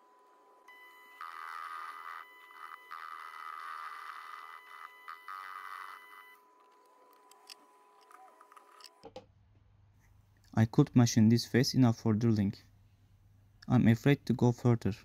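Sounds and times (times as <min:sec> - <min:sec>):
lathe motor whine: 0:00.0 - 0:09.0.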